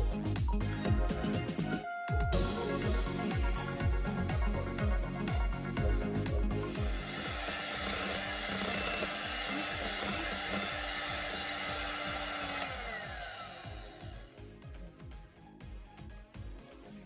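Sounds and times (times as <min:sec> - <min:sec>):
electric hand mixer running: 0:06.4 - 0:14.4.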